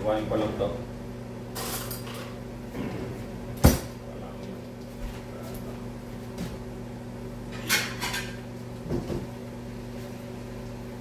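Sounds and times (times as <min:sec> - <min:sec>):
steady low hum: 0:00.0 - 0:11.0
kitchen clatter: 0:01.5 - 0:02.4, 0:07.5 - 0:09.3.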